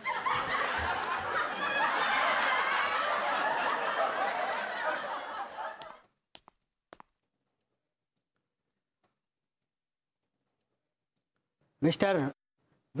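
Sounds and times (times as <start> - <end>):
audience laughing: 0.0 - 6.0.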